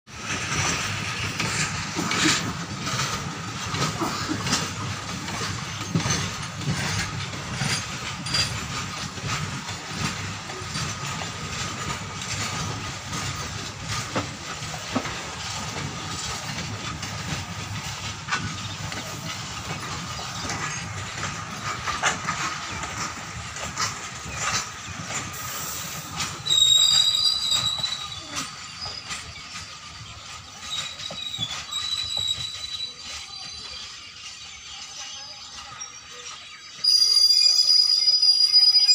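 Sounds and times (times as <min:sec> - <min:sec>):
wheels clicking over rail joints: 0:00.1 - 0:37.7
train rolling noise: 0:00.1 - 0:38.9
high-pitched metallic squeal: 0:25.6 - 0:38.9.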